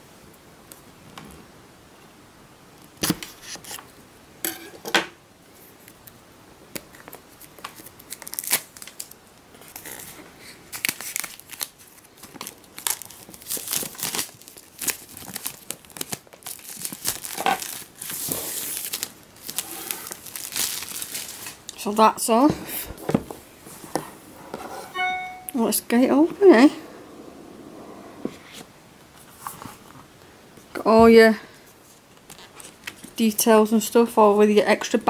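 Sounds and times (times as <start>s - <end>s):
plastic wrap crinkling and tearing: 6.8s - 21.8s.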